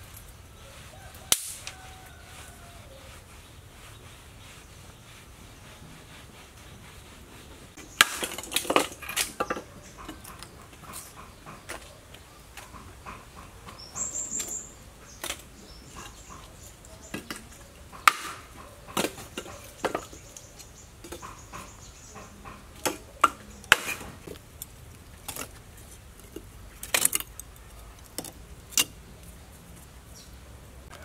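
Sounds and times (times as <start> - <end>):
charcoal lumps clinking and knocking: 7.8 - 12.0, 15.2 - 20.2, 22.7 - 29.3.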